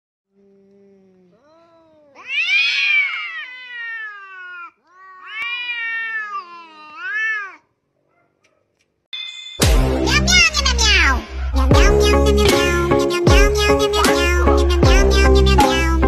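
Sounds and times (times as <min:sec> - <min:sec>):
cat growling low: 0:00.4 - 0:07.6
cats yowling: 0:01.4 - 0:07.7.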